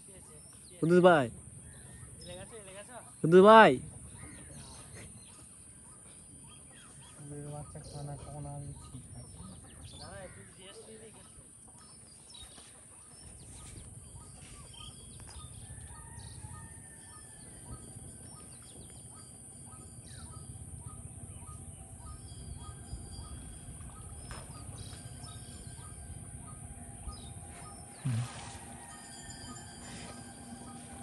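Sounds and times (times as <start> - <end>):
bird chirping: 0.0 - 31.0
low outdoor rumble: 13.1 - 31.0.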